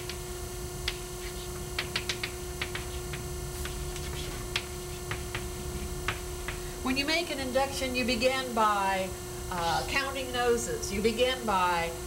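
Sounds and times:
electrical hum: 0:00.0 - 0:12.0
chalk tapping on chalkboard: 0:00.8 - 0:06.7.

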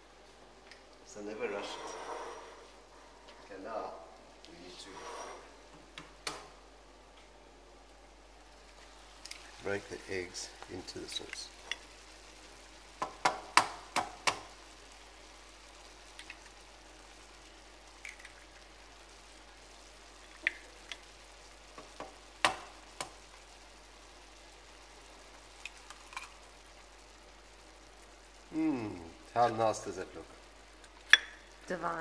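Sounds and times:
sauce sizzling in a frying pan: 0:08.2 - 0:32.0
eggshells cracking: 0:16.1 - 0:16.6, 0:17.9 - 0:18.7, 0:25.6 - 0:26.5.

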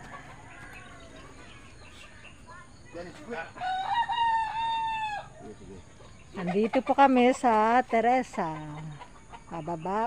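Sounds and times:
rooster crowing: 0:03.6 - 0:05.4.

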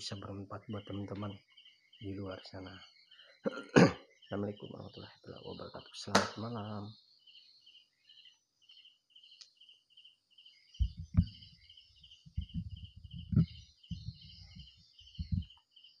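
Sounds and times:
cricket chirping: 0:07.0 - 0:16.0.

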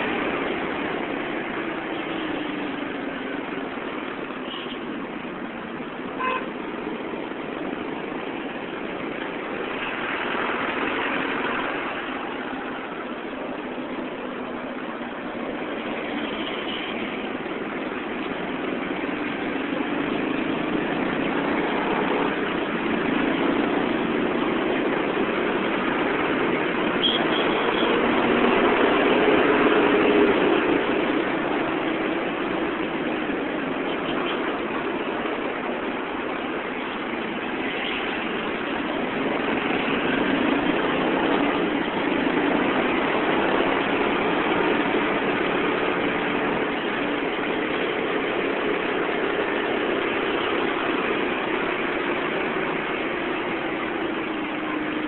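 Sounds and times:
road traffic engine noise: 0:00.0 - 0:55.0
vehicle horn beeps: 0:06.2 - 0:06.5, 0:27.0 - 0:27.9.

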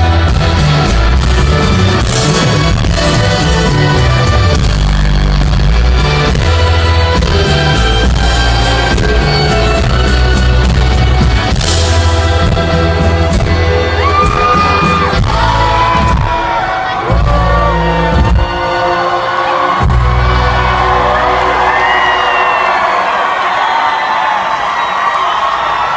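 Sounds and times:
drumbeat: 0:00.0 - 0:19.0, 0:19.7 - 0:20.8
heavy bass: 0:00.0 - 0:22.0
rock band playing live: 0:00.0 - 0:22.8
high whoops: 0:21.0 - 0:25.9.

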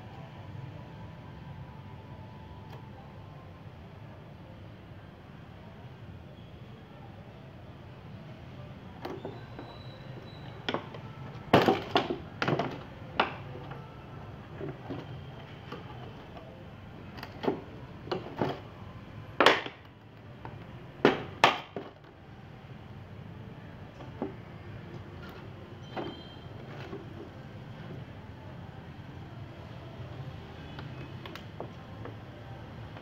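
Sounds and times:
plastic jug knocking on concrete: 0:21.0 - 0:21.9.

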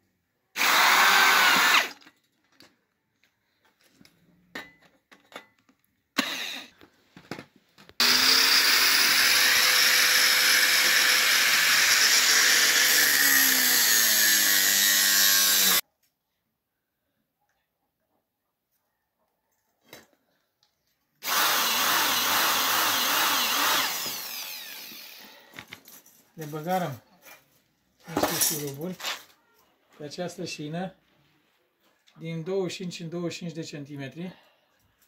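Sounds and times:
angle grinder cutting steel: 0:00.6 - 0:02.0, 0:06.2 - 0:06.7, 0:08.0 - 0:15.8, 0:21.2 - 0:25.3
electric drill driving screw: 0:00.6 - 0:02.0, 0:06.2 - 0:06.7, 0:08.0 - 0:15.8, 0:21.2 - 0:25.4.

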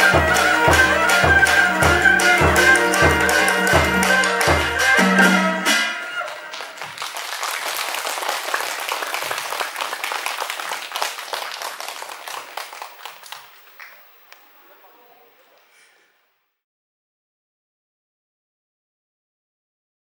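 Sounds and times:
traditional ensemble music: 0:00.0 - 0:07.0
audience applause: 0:00.0 - 0:15.6.

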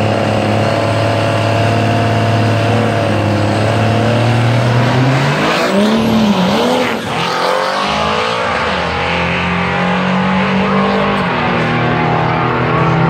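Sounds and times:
racing truck engines at full throttle: 0:00.0 - 0:13.0.

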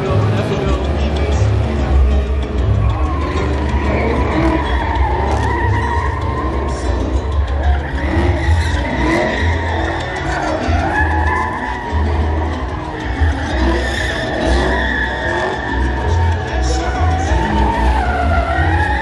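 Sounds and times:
car engines revving high: 0:00.0 - 0:19.0
tyres squealing: 0:00.0 - 0:19.0.

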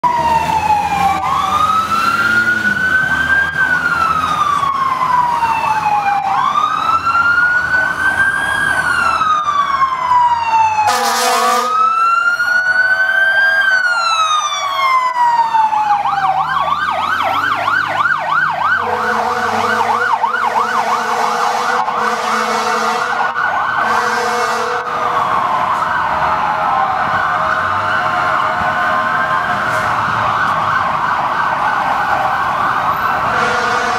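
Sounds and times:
fire engine sirens: 0:00.0 - 0:33.9
truck engine rumble: 0:00.0 - 0:33.9
horn blasts: 0:10.9 - 0:11.9, 0:18.8 - 0:23.2, 0:23.8 - 0:25.2, 0:33.3 - 0:33.9.

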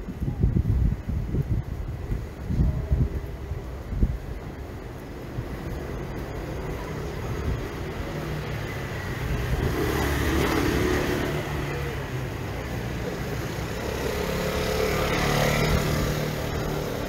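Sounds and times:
cars passing: 0:03.6 - 0:17.0.

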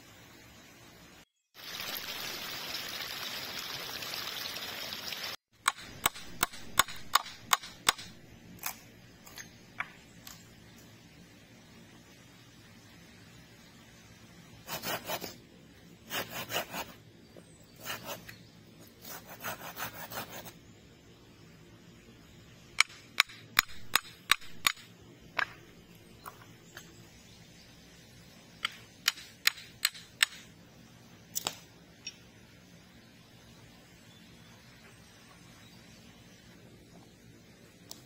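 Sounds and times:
sharp wooden clicks and knocks: 0:05.6 - 0:10.4, 0:22.8 - 0:26.9, 0:28.6 - 0:30.5.

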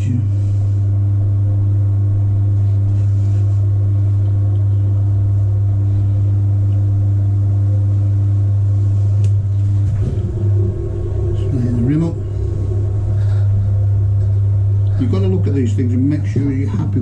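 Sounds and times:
potter's wheel motor hum: 0:09.5 - 0:16.4.

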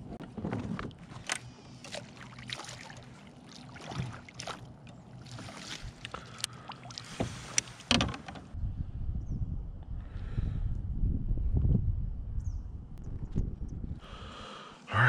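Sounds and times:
water noise: 0:00.0 - 0:08.6.

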